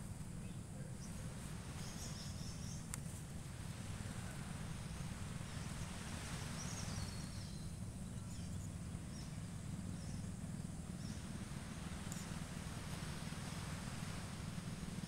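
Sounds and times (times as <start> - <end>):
faint bird chirps: 0.4 - 2.9, 4.0 - 11.3.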